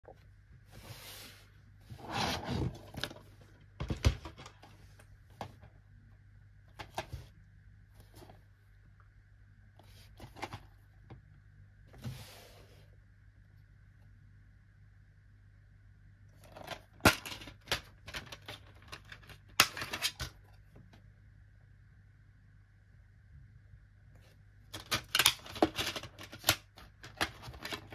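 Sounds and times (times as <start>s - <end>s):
plastic cases scraping rustle: 0.7s - 3.4s.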